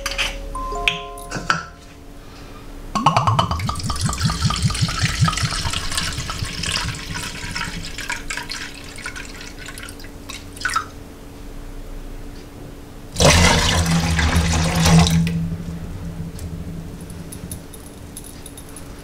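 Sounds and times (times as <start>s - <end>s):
liquid glugging from bottle: 3.0s - 9.9s.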